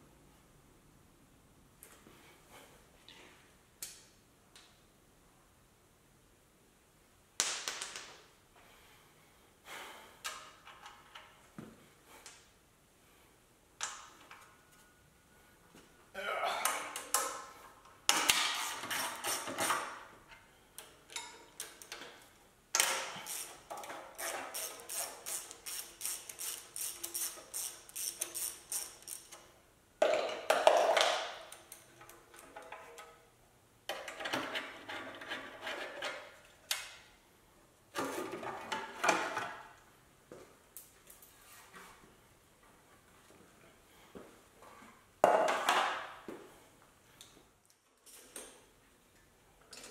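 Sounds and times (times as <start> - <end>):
hand ratchet clicking: 22.8 - 29.4.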